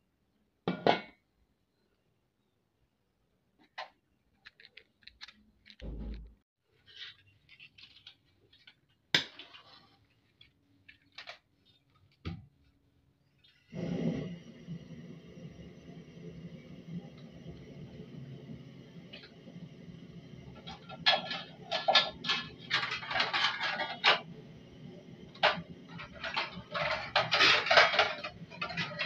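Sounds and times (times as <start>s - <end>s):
gas flame hissing: 13.7s - 29.0s
pot and burner clicks and knocks: 20.4s - 24.4s, 25.2s - 29.0s.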